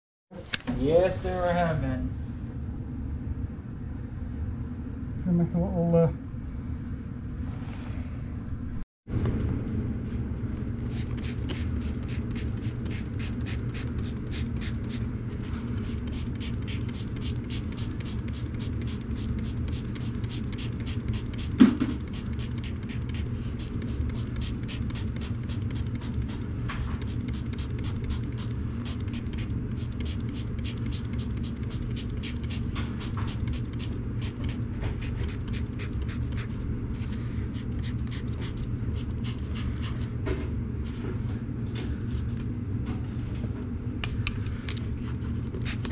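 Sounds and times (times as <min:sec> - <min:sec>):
steady low hum: 0:00.3 - 0:45.9
spray bottle spritzing: 0:10.9 - 0:15.0, 0:15.7 - 0:36.5.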